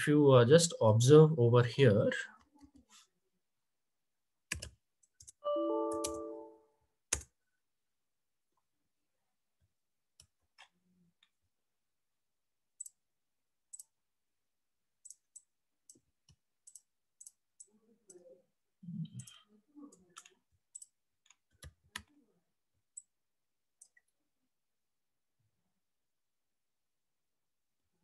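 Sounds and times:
mouse and keyboard clicks: 0:15.0 - 0:18.2.

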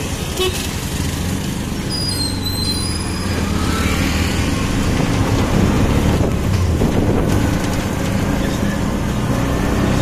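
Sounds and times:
road and wind noise: 0:00.0 - 0:10.0.

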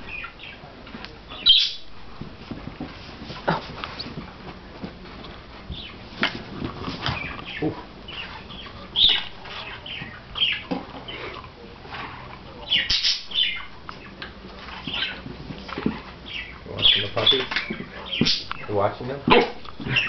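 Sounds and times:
puppies scuffling on carpet: 0:00.0 - 0:20.0.

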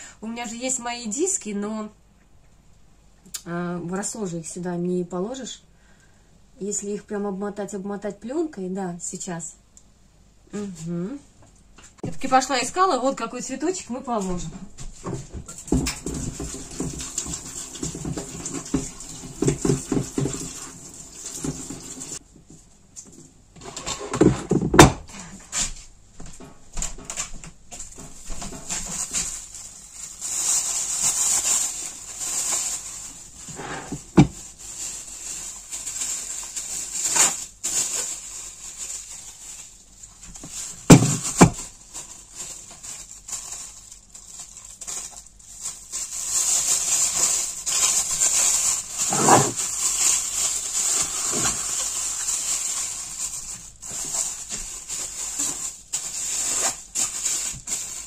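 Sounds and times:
cling film crinkling: 0:27.7 - 0:58.0.

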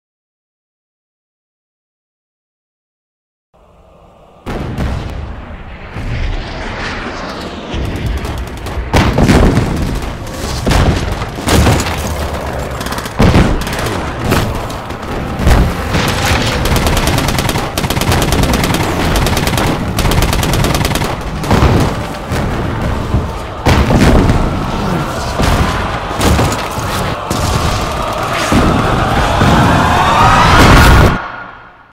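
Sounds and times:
rising tone: 0:03.6 - 0:10.4
explosion booms: 0:04.4 - 0:12.3, 0:13.2 - 0:20.2, 0:21.2 - 0:31.6
automatic gunfire: 0:15.4 - 0:21.9.

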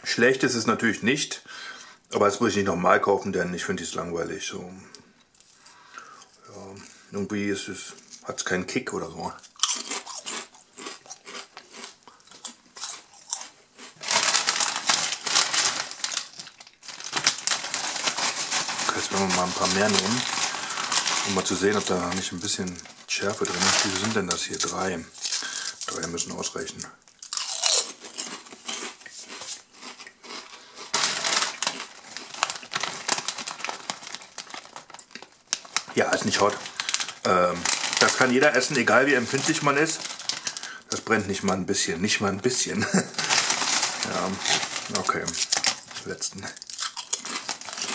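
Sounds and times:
crisps crunching: 0:09.4 - 0:41.6, 0:42.5 - 0:47.9
foil packet crinkling: 0:12.8 - 0:41.6, 0:42.5 - 0:47.9.

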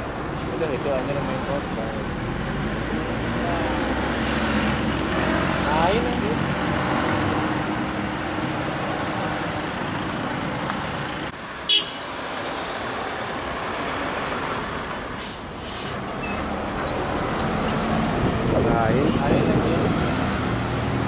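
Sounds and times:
traffic driving by: 0:00.0 - 0:21.0
brief high hisses: 0:15.2 - 0:16.0.

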